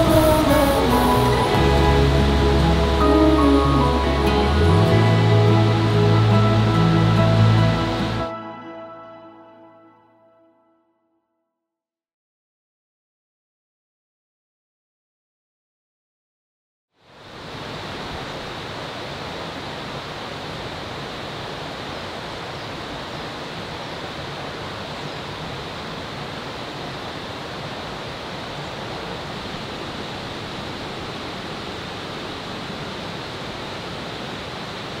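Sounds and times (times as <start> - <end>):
mountain stream rushing: 0.0 - 9.1, 17.0 - 35.0.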